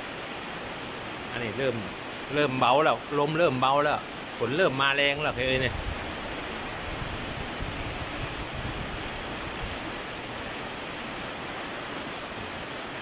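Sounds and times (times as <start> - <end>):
heavy rain on concrete and foliage: 0.0 - 13.0
wind rumbling on microphone: 5.0 - 11.4.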